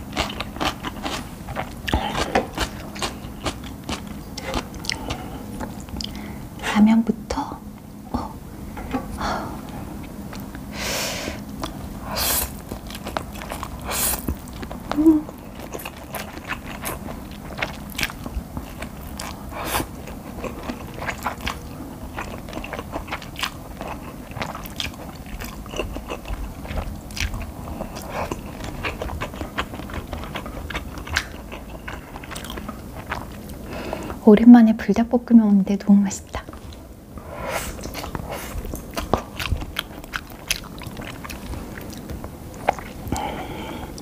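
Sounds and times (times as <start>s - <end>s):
chewing with wet mouth clicks: 0.1s - 6.2s, 12.5s - 33.6s, 37.8s - 43.3s.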